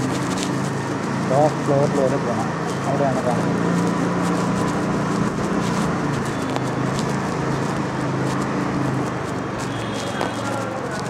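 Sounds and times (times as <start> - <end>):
motor scooter engine running: 0.0 - 11.0
steady rush of noise: 0.0 - 11.0.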